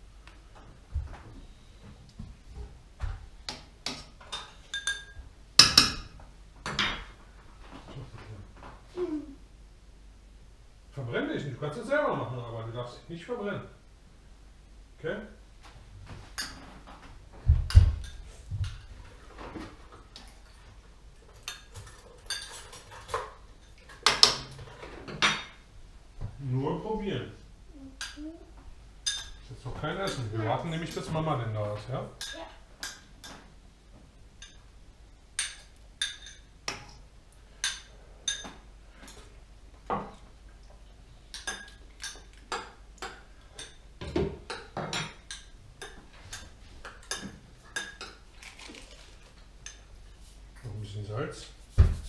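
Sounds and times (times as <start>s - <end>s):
utensils and dishes clinking: 3.9s - 6.1s, 20.2s - 25.6s, 35.4s - 37.0s, 37.6s - 39.3s, 41.3s - 49.9s.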